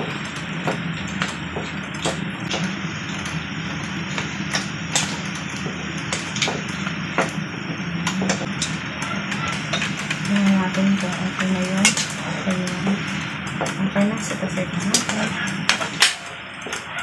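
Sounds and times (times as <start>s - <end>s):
water boiling in a pan: 0.0s - 17.0s
tongs clicking against pan: 8.0s - 13.0s, 13.6s - 16.8s.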